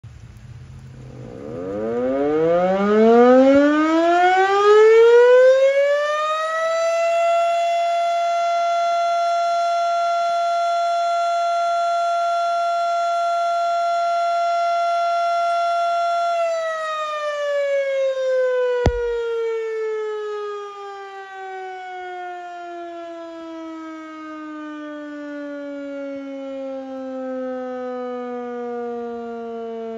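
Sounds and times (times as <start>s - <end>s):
sharp click: 18.9s - 19.2s.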